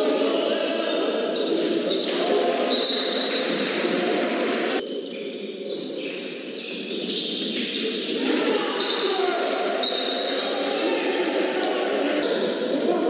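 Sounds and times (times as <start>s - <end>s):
din of voices: 0.0s - 4.8s, 8.1s - 13.0s.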